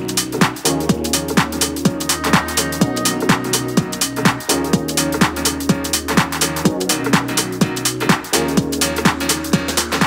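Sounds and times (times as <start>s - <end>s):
electronic music with drum beat: 0.0s - 10.0s.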